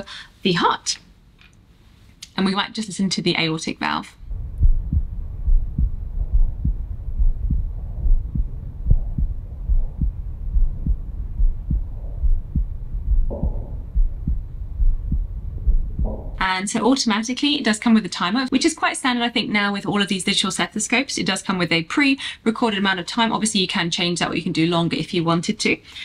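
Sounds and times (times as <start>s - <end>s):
heartbeat thumps: 4.2s - 16.5s
steady low rumble: 4.2s - 16.6s.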